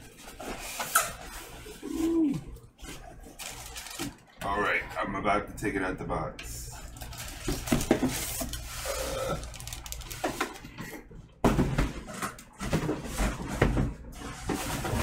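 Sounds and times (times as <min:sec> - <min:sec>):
plastic bag rustling: 0:00.0 - 0:04.4, 0:06.7 - 0:11.0.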